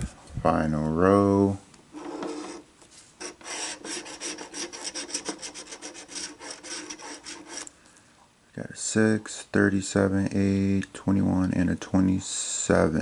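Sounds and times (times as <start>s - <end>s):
scratching lottery ticket: 2.0s - 2.6s, 3.2s - 7.7s.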